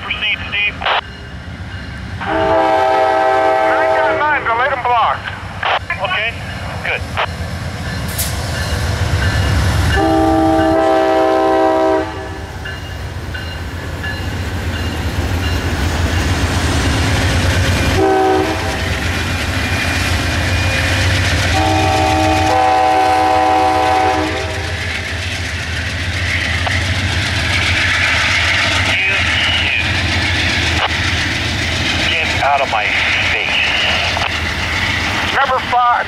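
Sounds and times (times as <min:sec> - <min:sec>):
diesel locomotive engine rumble: 0:00.0 - 0:36.0
train wheel noise: 0:00.0 - 0:36.0
train horn blasts: 0:02.2 - 0:04.2, 0:09.9 - 0:12.5, 0:18.0 - 0:18.9, 0:21.5 - 0:24.8.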